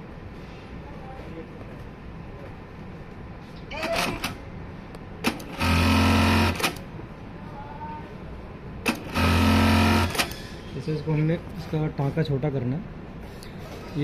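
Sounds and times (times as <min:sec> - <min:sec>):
sewing machine needle running: 0:05.2 - 0:06.8, 0:08.9 - 0:10.4.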